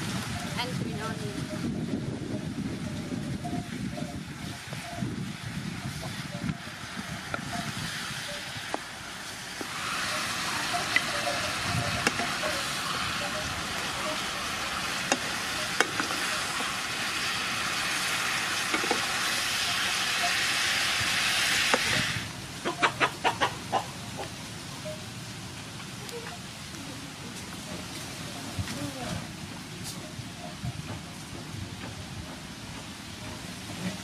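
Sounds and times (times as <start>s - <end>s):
food sizzling in a pan: 3.7s - 22.4s.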